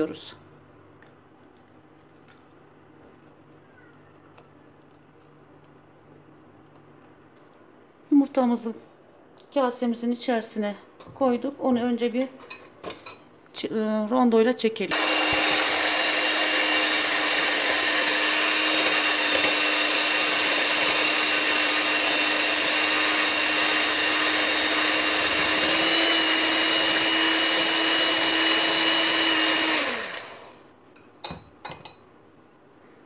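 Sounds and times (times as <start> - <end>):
electric hand mixer whining: 14.9 - 30.7.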